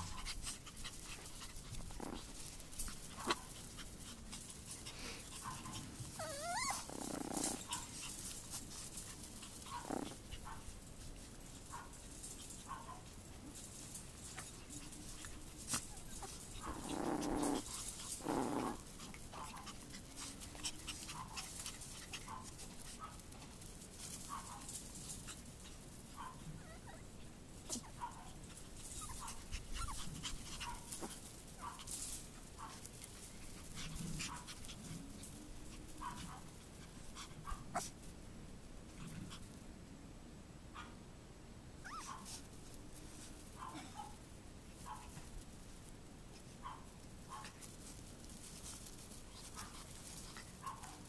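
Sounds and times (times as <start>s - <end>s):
puppies yipping and squeaking: 0.0s - 8.3s, 26.2s - 27.1s, 28.8s - 32.8s, 41.8s - 42.4s.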